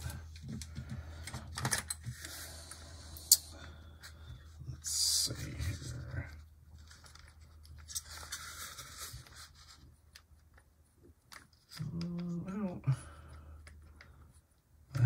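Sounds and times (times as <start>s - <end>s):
faint scratching of plastic: 3.9s - 12.8s
person humming: 11.8s - 13.1s.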